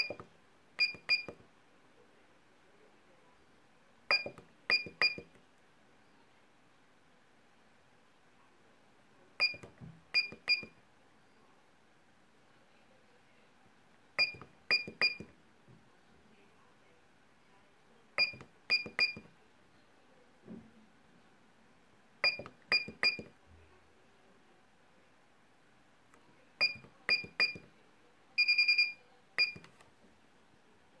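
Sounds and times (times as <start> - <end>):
longer pulsing beep: 0.8 - 1.4, 22.2 - 23.2.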